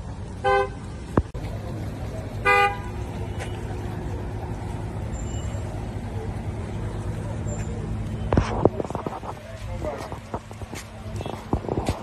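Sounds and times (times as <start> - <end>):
low street rumble of engines: 0.0 - 12.0
car horn toot: 0.4 - 0.8, 2.4 - 3.6, 11.2 - 11.5.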